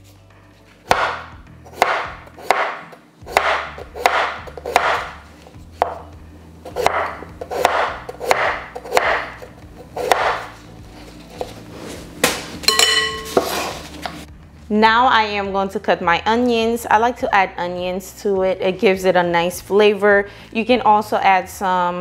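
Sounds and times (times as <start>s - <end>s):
knife slicing potato on board: 0.8s - 6.0s, 6.6s - 10.6s, 13.3s - 14.2s.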